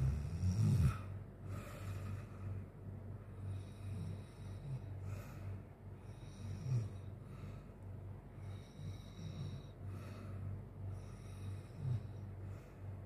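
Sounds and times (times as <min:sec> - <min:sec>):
man snoring: 0:00.0 - 0:01.1, 0:03.4 - 0:05.0, 0:06.0 - 0:07.1, 0:08.4 - 0:09.8, 0:10.9 - 0:12.2.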